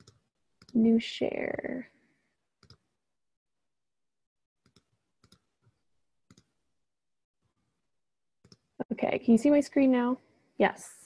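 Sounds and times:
computer mouse clicks: 0:00.0 - 0:00.8, 0:02.6 - 0:02.9, 0:04.6 - 0:06.6, 0:08.4 - 0:08.7.

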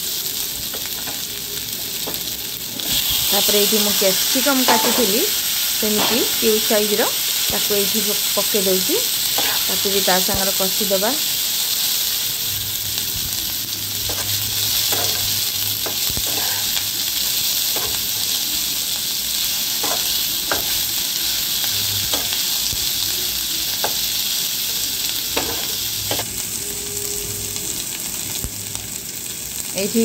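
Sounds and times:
vegetables sizzling in oil: 0:00.0 - 0:30.0
spatula scraping and tapping pan: 0:09.4 - 0:09.8, 0:14.0 - 0:16.8, 0:17.7 - 0:18.2, 0:25.4 - 0:26.3.

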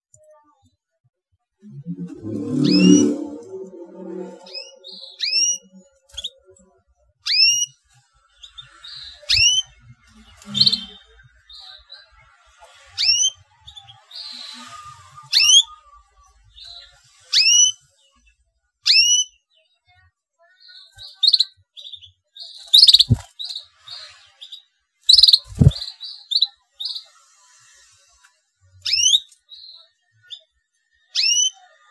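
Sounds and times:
canary calling and chirping: 0:01.8 - 0:06.5, 0:07.2 - 0:07.8, 0:10.4 - 0:10.9, 0:21.0 - 0:23.7, 0:24.4 - 0:27.2, 0:28.8 - 0:30.4, 0:31.2 - 0:31.7
wings fluttering in cage: 0:22.7 - 0:23.6, 0:25.1 - 0:25.9.

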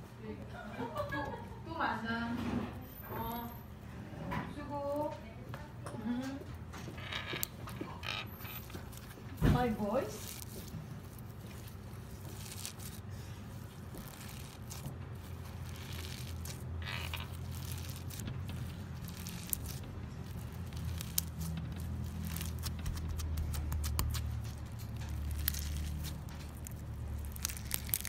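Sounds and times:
slime squishing and crackling: 0:06.9 - 0:28.0.

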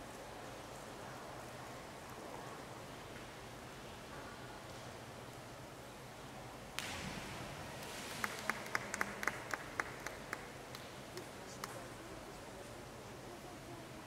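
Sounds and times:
divers splashing into water: 0:06.8 - 0:09.1
spectators clapping: 0:07.8 - 0:11.8.

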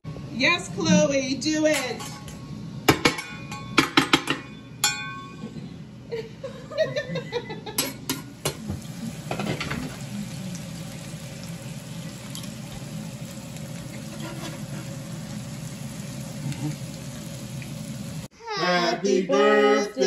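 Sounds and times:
food sizzling in frying: 0:08.2 - 0:18.3.

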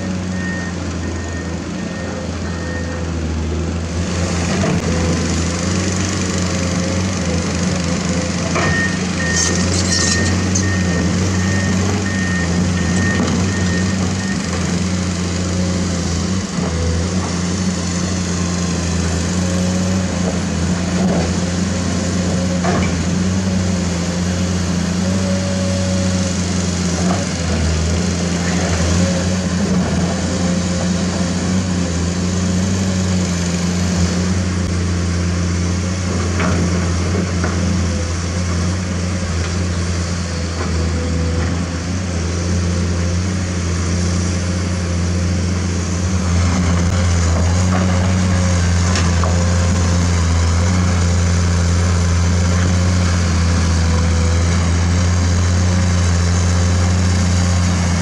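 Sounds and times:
diesel machinery engine drone: 0:00.0 - 0:58.0
high beeps: 0:08.7 - 0:14.4.

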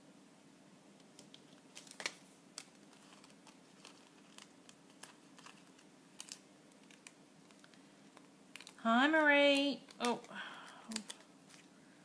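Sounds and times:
faint steady hum: 0:00.0 - 0:12.0
paper rustling: 0:01.2 - 0:08.8.

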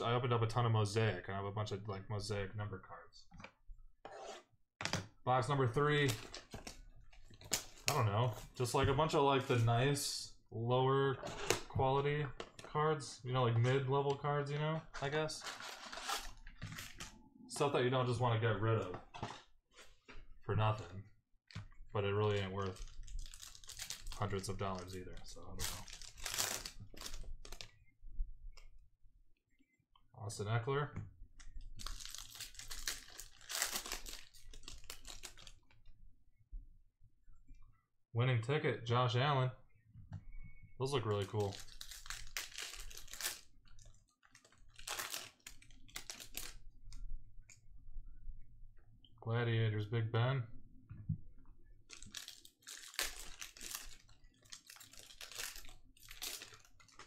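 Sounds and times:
foil wrapper crinkling: 0:22.3 - 0:27.7, 0:31.8 - 0:35.6, 0:41.1 - 0:46.6, 0:51.9 - 0:57.0.

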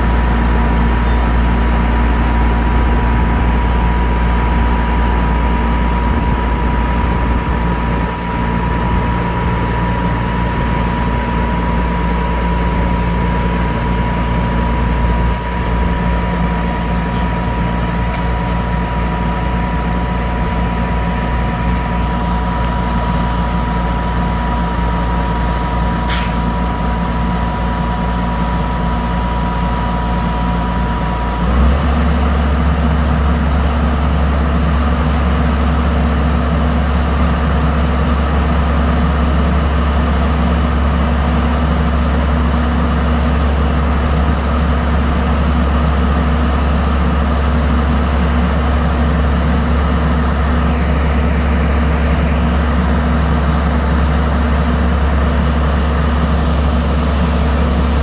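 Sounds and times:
vehicle engine running: 0:00.0 - 0:58.0
thin steady whine: 0:44.1 - 0:45.4.

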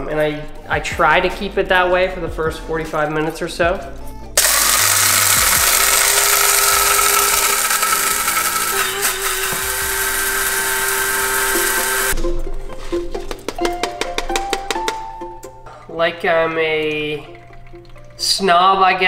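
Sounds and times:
coffee grinder whirring: 0:04.4 - 0:12.2.

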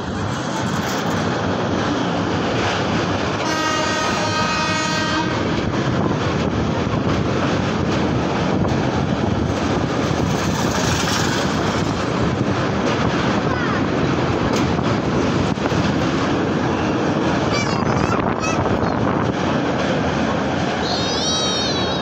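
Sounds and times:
train rumbling and rattling: 0:00.0 - 0:22.0
train horn: 0:03.4 - 0:05.5.

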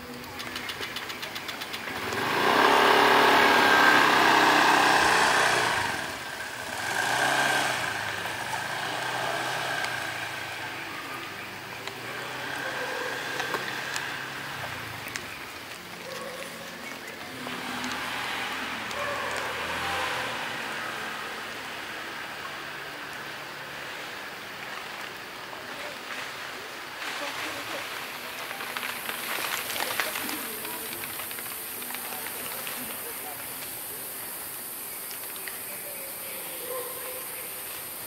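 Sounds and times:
faint engine rising and falling: 0:00.6 - 0:24.1
vehicle engine passing by: 0:01.5 - 0:25.0.

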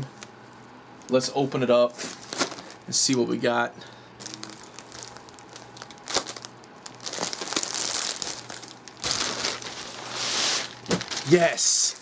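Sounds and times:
plastic bag crinkling: 0:02.0 - 0:02.9, 0:04.2 - 0:12.0.

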